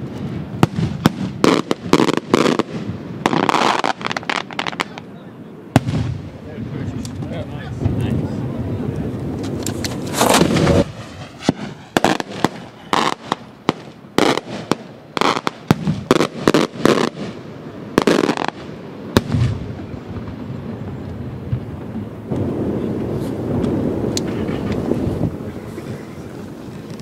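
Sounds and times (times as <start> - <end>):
heavy boom: 5.8 - 12.7
firework shells cracking: 8.9 - 17.4, 18.0 - 27.0.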